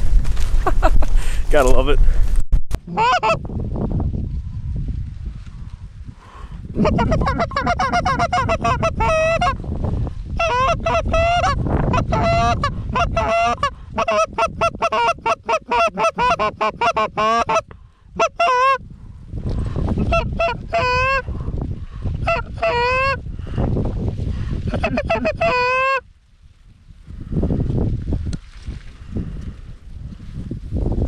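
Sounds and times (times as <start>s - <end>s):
wind rumble on microphone: 0.0s - 31.0s
goose call clucks and honks: 2.9s - 3.4s, 6.8s - 9.6s, 10.3s - 18.8s, 20.0s - 21.3s, 22.2s - 23.2s, 24.7s - 26.0s.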